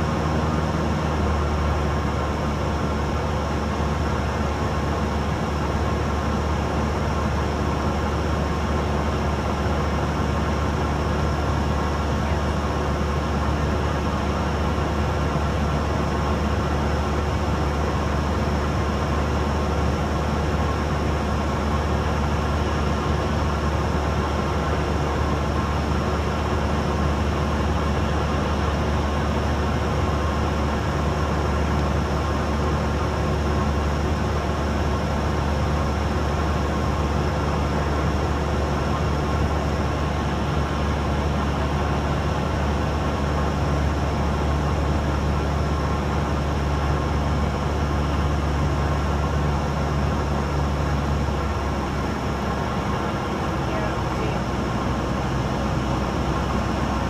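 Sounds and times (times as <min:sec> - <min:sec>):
airplane engine droning: 0:00.0 - 0:57.0.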